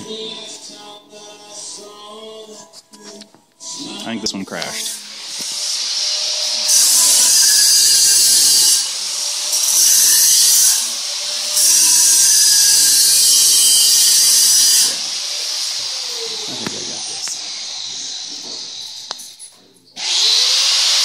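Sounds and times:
power tool hissing whine: 0:04.7 - 0:19.4, 0:20.0 - 0:21.0.

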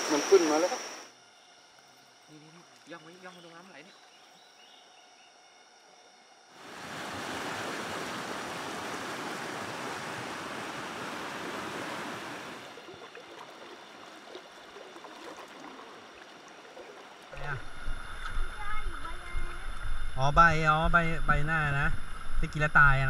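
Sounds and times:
stream rushing over rocks: 0:06.6 - 0:12.8
water splashes: 0:06.6 - 0:20.1.

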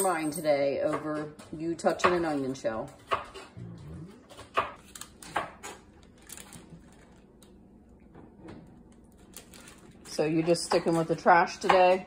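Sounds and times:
kitchen knocks and clicks: 0:00.0 - 0:03.5, 0:04.3 - 0:05.9, 0:10.4 - 0:12.0.

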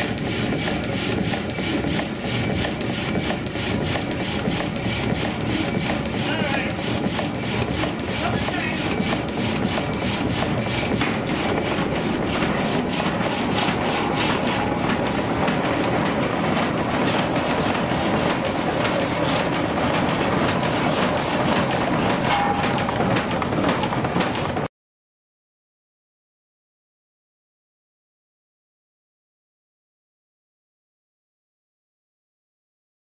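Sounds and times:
sawmill saw clattering: 0:00.0 - 0:24.7.

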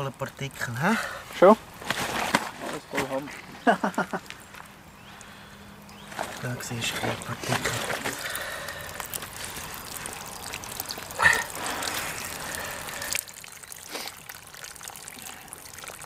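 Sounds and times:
water trickling and splashing: 0:00.0 - 0:16.0.

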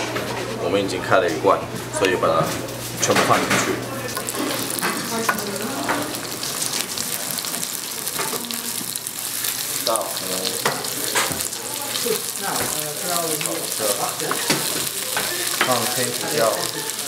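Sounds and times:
beans sizzling in oil: 0:04.0 - 0:17.0
spatula stirring in pan: 0:04.2 - 0:17.0.

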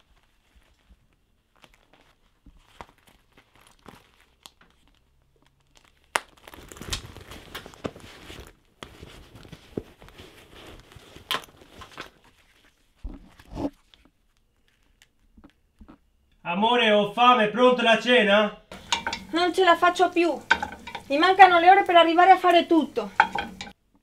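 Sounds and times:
rustling of leather wallet: 0:00.0 - 0:15.3.

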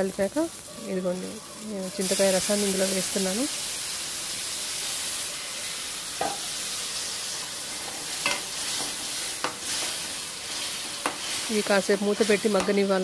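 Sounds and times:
chillies sizzling in oil: 0:00.0 - 0:13.0
metal spoon clinking on pan: 0:06.2 - 0:06.4, 0:08.2 - 0:08.5.

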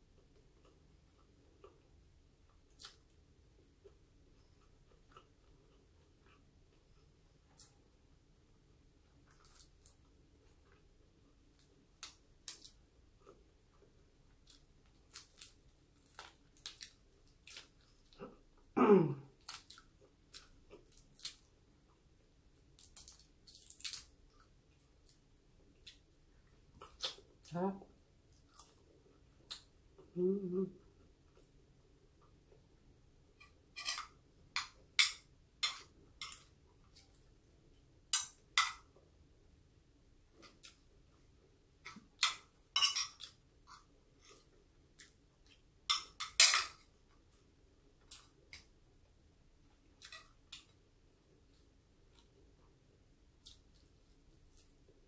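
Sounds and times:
chewing: 0:03.8 - 0:07.9, 0:09.1 - 0:18.4, 0:19.3 - 0:22.0
cutlery clinking on a plate: 0:33.4 - 0:36.5, 0:42.2 - 0:43.3, 0:45.9 - 0:46.8.

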